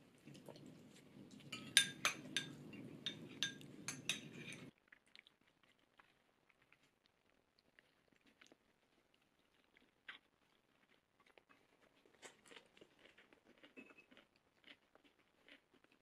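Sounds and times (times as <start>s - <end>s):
chopsticks tapping ceramic dish: 1.5s - 4.7s.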